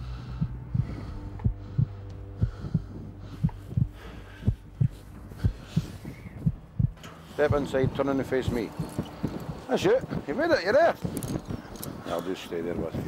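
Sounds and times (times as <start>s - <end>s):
faint hum: 0.0s - 10.3s
heartbeat thudding: 0.0s - 12.0s.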